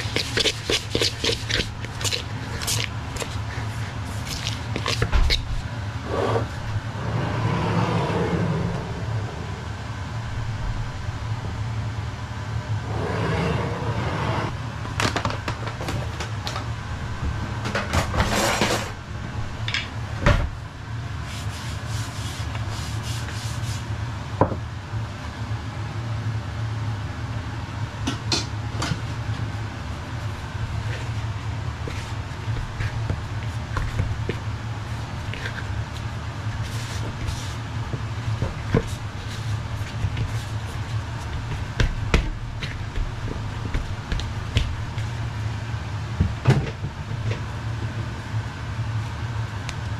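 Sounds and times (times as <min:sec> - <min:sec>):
hands brushing flour on worktop: 0:00.0 - 0:05.1, 0:21.2 - 0:23.9, 0:30.8 - 0:41.8
steady low hum: 0:00.0 - 0:49.9.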